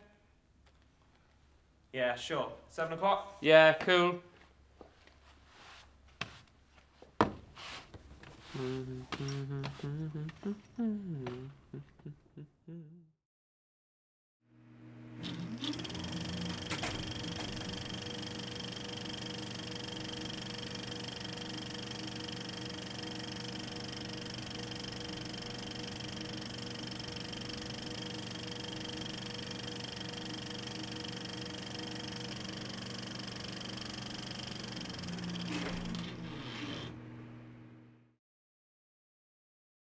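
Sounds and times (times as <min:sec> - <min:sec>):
machine whirring hum: 0:14.5 - 0:38.2.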